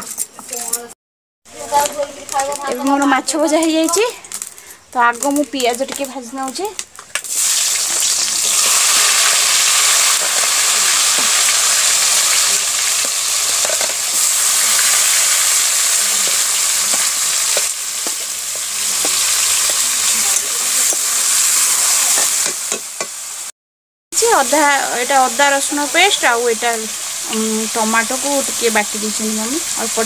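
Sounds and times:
onions sizzling in hot oil: 0:01.5 - 0:23.5, 0:24.2 - 0:30.0.

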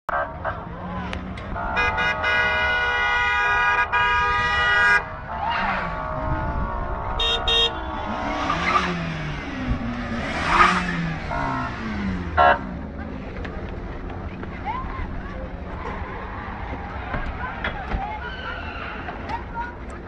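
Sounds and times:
car engines revving: 0:00.1 - 0:20.0
car horn: 0:01.4 - 0:12.8
high double horn toot: 0:01.5 - 0:12.8.

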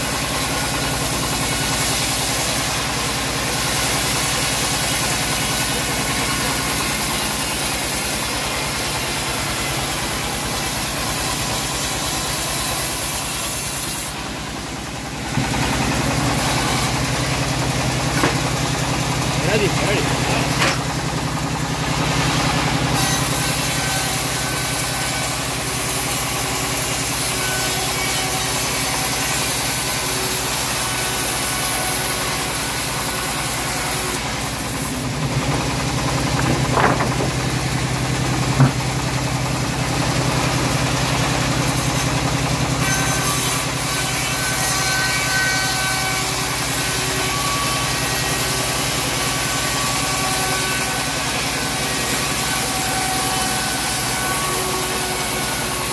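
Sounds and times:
engine drone: 0:00.0 - 0:44.5
band saw cutting wood: 0:00.0 - 0:55.9.

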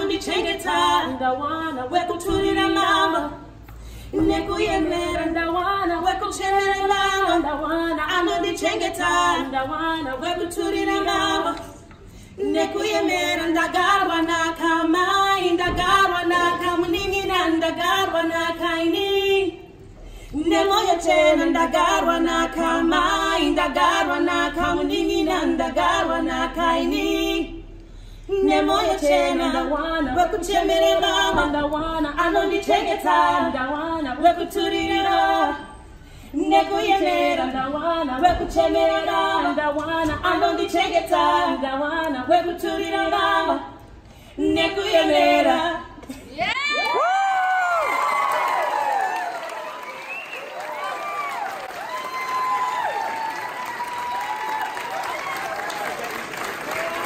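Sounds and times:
women singing a cappella: 0:00.0 - 0:47.8.

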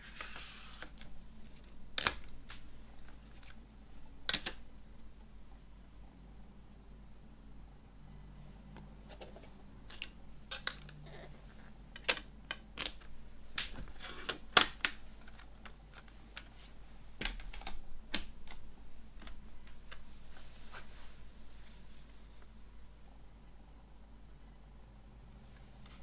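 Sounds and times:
plastic cd case clicks and snaps: 0:02.0 - 0:02.6, 0:04.3 - 0:04.6, 0:13.6 - 0:16.5.

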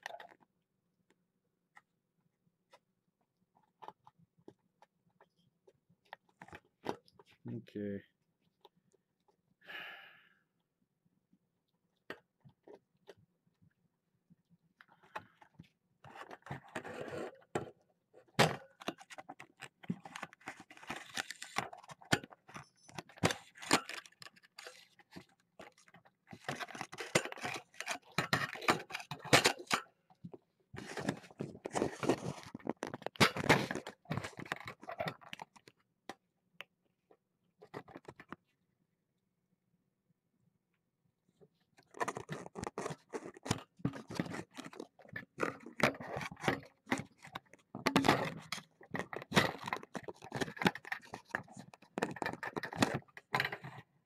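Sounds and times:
camera handling rustling: 0:18.4 - 0:29.8, 0:30.8 - 0:35.7.

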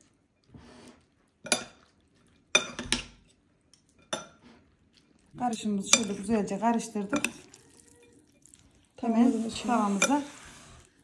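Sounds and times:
soft wet stirring: 0:00.0 - 0:11.0
spoon clinking against bowl: 0:05.5 - 0:06.3, 0:07.0 - 0:08.5.

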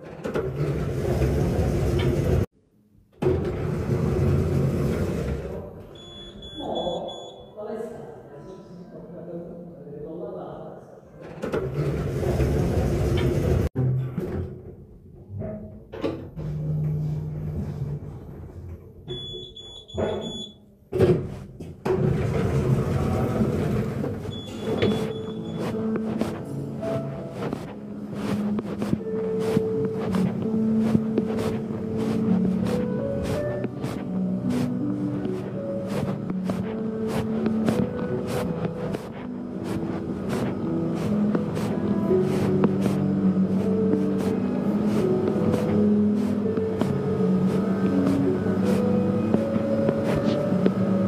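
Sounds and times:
lift car rumble and hum: 0:00.0 - 0:02.5, 0:03.2 - 0:05.8, 0:11.4 - 0:19.2, 0:21.9 - 0:51.0
high electronic beep: 0:06.0 - 0:07.6, 0:19.1 - 0:20.6, 0:24.3 - 0:25.6.

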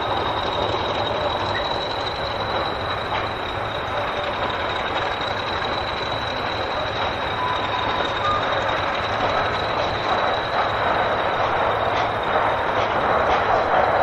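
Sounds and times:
diesel locomotive engine running: 0:00.0 - 0:14.0
wheels clicking over rail joints: 0:00.0 - 0:14.0.

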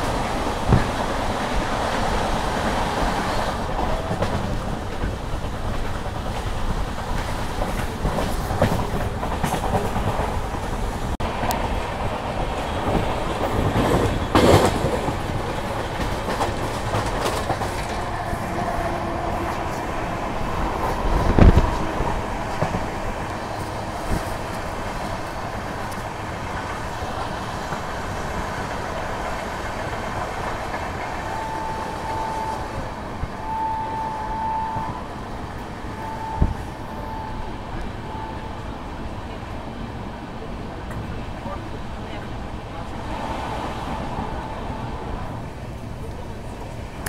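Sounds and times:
train wheels clickety-clack: 0:00.0 - 0:34.0.

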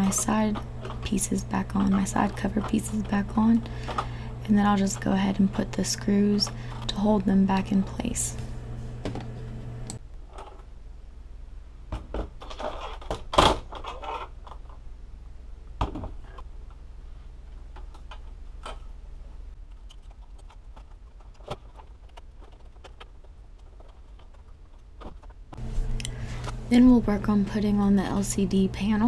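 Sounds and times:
low steady hum: 0:00.0 - 0:29.0
plastic parts clicking and knocking: 0:19.6 - 0:25.4.

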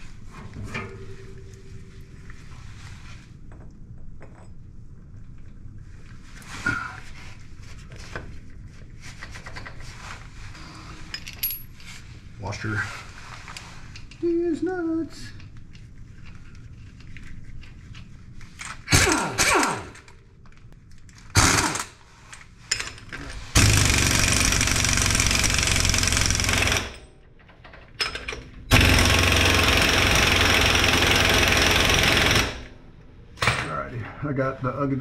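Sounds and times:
impact wrench hammering: 0:28.7 - 0:32.7.

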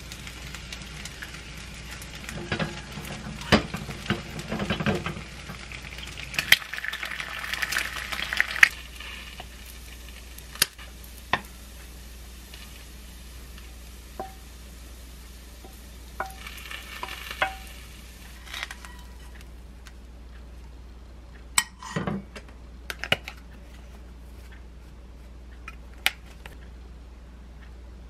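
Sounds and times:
wooden spoon scraping a pan: 0:16.2 - 0:19.5.

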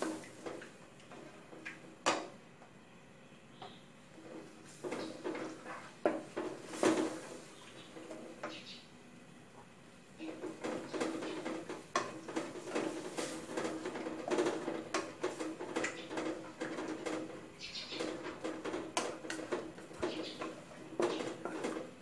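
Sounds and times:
wooden spatula scraping a pot: 0:04.1 - 0:08.5, 0:10.2 - 0:22.0.

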